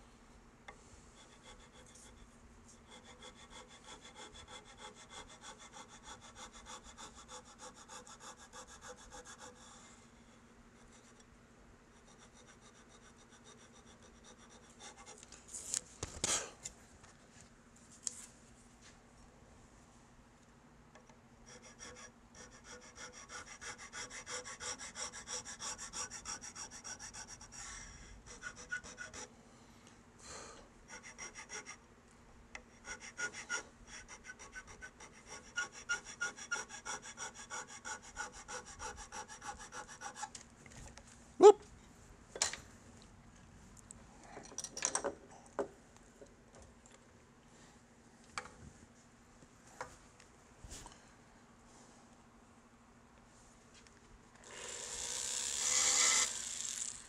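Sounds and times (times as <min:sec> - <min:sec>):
tool scraping wood: 0:21.5 - 0:27.6, 0:32.8 - 0:40.4.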